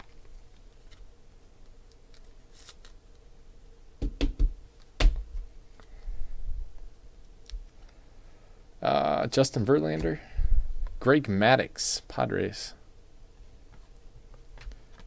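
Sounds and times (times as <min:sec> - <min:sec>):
cards rustling: 0:00.0 - 0:03.2
loud dull thumps: 0:04.0 - 0:05.5.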